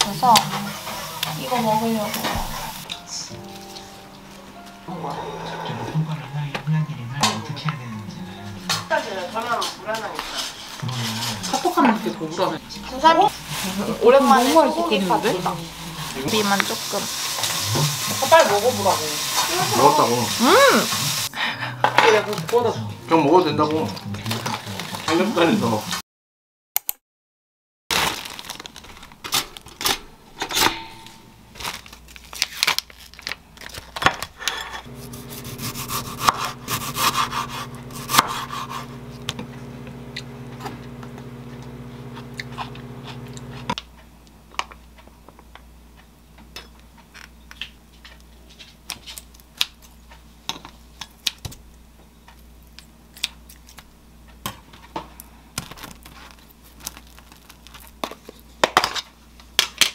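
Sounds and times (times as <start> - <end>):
electric appliance humming: 0.0 - 3.0, 8.8 - 21.3, 34.8 - 43.8
knife cutting on wooden board: 34.9 - 39.4.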